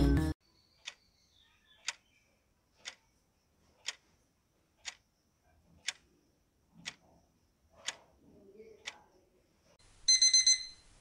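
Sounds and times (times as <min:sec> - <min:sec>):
clock ticking: 0:01.8 - 0:02.0, 0:02.8 - 0:03.1, 0:03.8 - 0:04.1, 0:04.8 - 0:05.1, 0:05.8 - 0:06.1, 0:06.8 - 0:07.1, 0:08.8 - 0:09.0.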